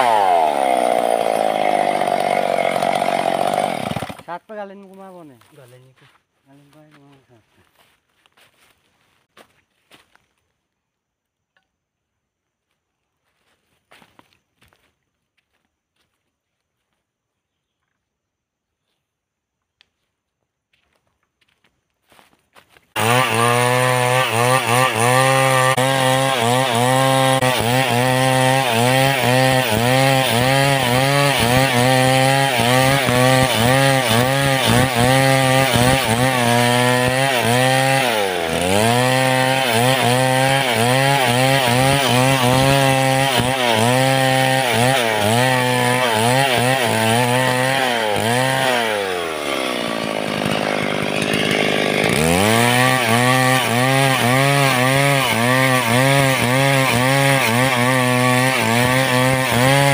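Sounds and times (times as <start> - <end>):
chainsaw cutting log: 0.0 - 5.5, 22.9 - 59.9.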